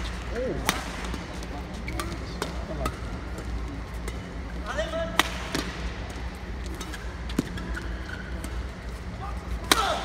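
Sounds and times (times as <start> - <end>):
rackets hitting shuttlecock: 0.0 - 4.4, 5.1 - 7.7, 9.5 - 10.0
low hum of hall: 0.0 - 10.0.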